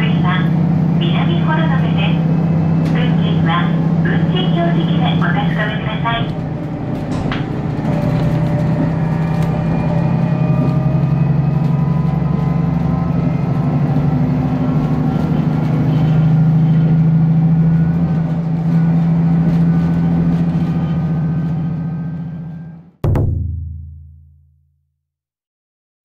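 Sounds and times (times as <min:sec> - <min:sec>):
diesel engine drone: 0:00.0 - 0:23.0
rising whines: 0:05.2 - 0:13.0.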